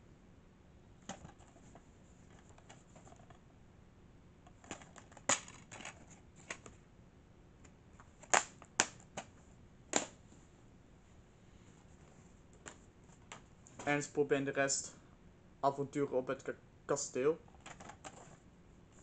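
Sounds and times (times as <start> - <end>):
plastic case clicks and snaps: 8.2 - 9.3.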